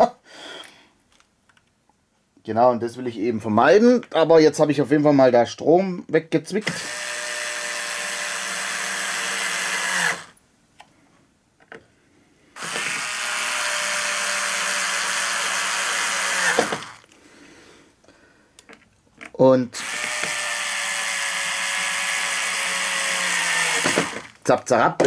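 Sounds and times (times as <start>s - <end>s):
cordless screwdriver motor whine: 6.7s - 10.4s, 12.6s - 17.1s, 19.8s - 24.4s.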